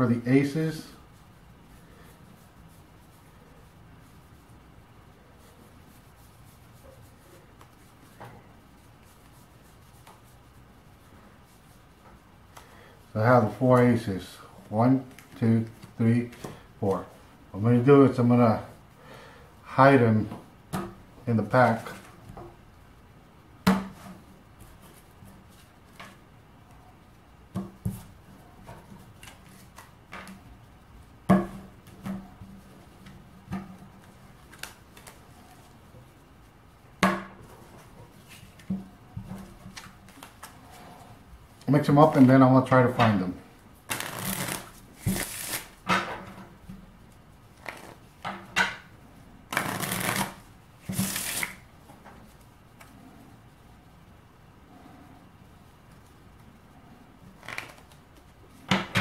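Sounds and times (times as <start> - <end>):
playing cards riffle-shuffled: 28.8 - 30.5, 34.0 - 36.2, 39.4 - 40.8, 43.8 - 45.8, 47.1 - 48.2, 49.5 - 51.7, 57.3 - 58.3
card rustles: 43.9 - 45.8, 49.5 - 51.6, 57.4 - 58.0.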